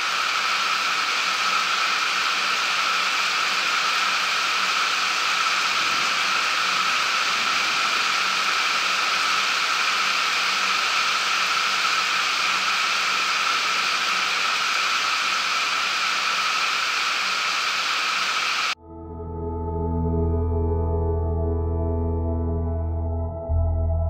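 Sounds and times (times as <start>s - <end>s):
rain pouring: 3.8s - 12.8s.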